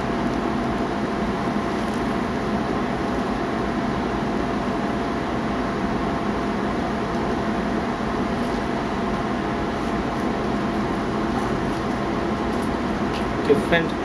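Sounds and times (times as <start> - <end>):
faint steady hum: 0.0 - 14.0
machine whirring: 0.0 - 14.0.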